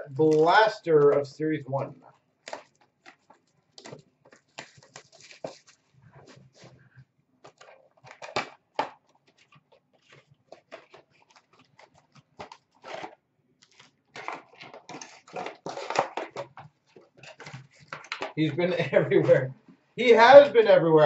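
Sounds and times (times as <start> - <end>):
cardboard tearing and crinkling: 2.4 - 6.7, 7.4 - 18.3.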